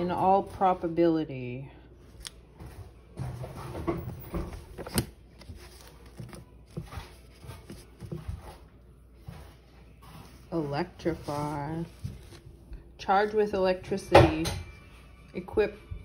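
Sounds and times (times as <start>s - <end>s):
thin pages being flipped: 4.3s - 8.7s, 10.1s - 12.6s.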